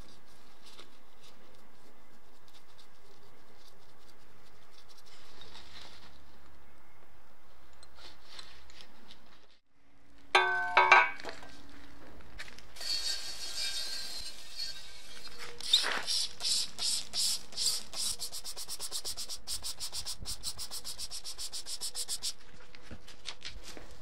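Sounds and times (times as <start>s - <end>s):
ringing metallic clanks: 10.4s - 11.2s
paintbrush scratching on metal: 12.8s - 22.4s.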